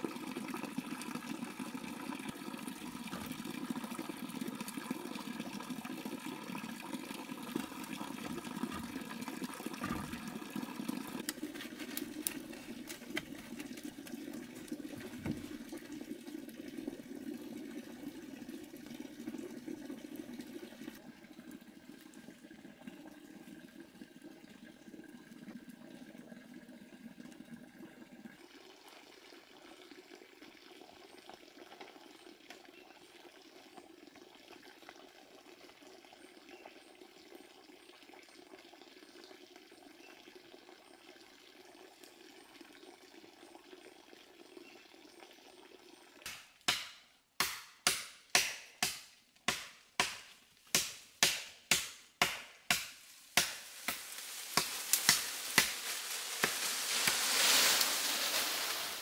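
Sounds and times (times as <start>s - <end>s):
machete chopping wood: 46.3s - 55.8s.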